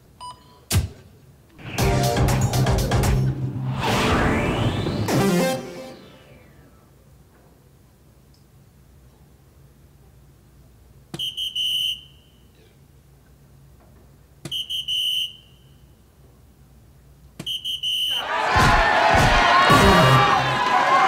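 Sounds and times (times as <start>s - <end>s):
crowd cheering: 18.1s - 21.0s.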